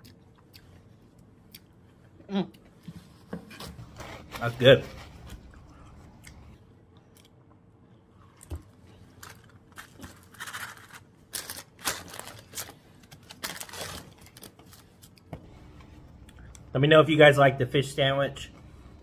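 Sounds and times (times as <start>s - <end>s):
chewing: 5.4s - 7.6s
paper wrappers crinkling: 9.0s - 15.2s.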